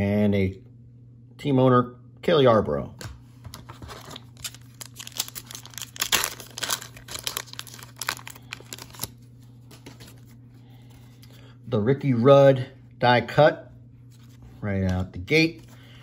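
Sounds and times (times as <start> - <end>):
wrapper tearing and crinkling: 3.9 - 9.2.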